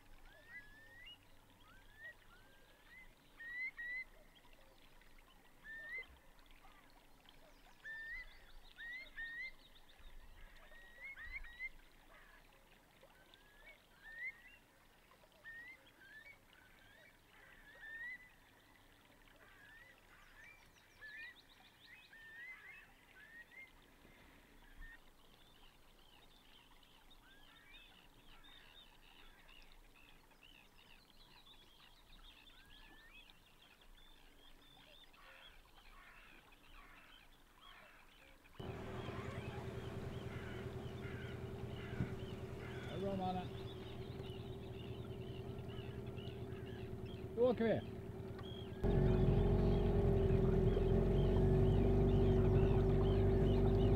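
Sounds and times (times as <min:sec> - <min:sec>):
faint high-pitched bird calls: 0:31.8 - 0:53.9.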